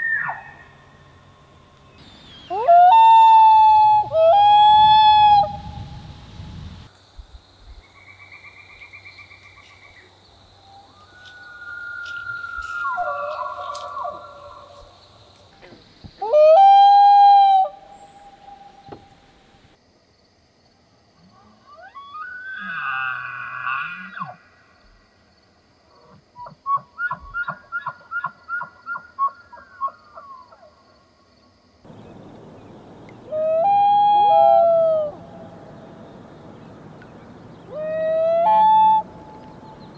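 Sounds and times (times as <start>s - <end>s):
elk bugling whistle: 2.5s - 5.9s, 31.9s - 35.6s, 37.6s - 39.8s
loon wailing: 32.2s - 35.6s.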